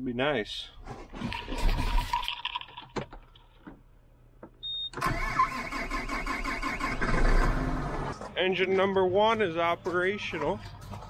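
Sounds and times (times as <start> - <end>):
tractor diesel engine starting: 5.0 - 8.2.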